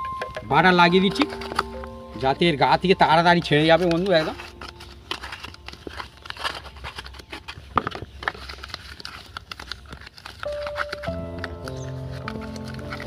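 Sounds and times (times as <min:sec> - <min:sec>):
background music: 0:00.0 - 0:07.1, 0:10.4 - 0:13.0
plastic food boxes clicking and crinkling: 0:00.0 - 0:13.0.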